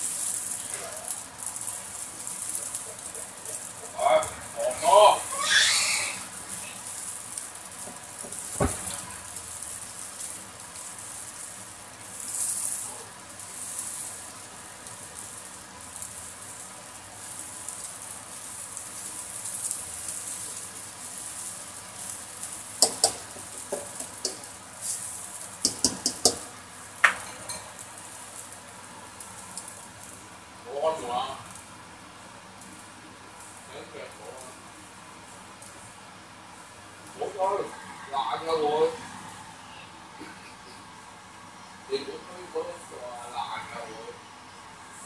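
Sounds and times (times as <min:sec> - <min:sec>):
food sizzling in a wok: 0:00.0 - 0:45.0
spatula knocking on pan: 0:22.8 - 0:24.5, 0:25.6 - 0:27.2.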